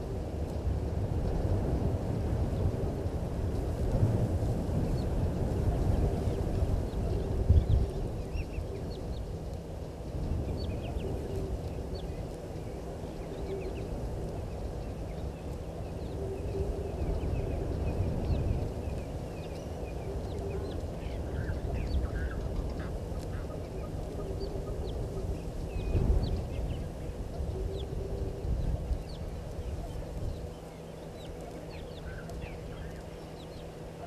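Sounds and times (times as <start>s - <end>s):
steady low rumble: 0.0s - 34.0s
goslings peeping: 15.8s - 34.0s.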